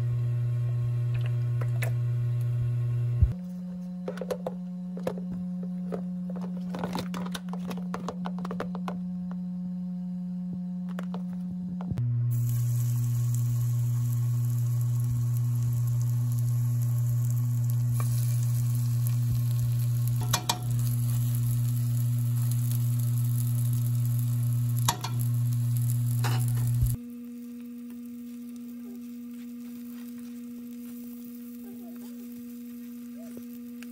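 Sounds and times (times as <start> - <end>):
tofu sizzling in oil: 12.3 - 28.7.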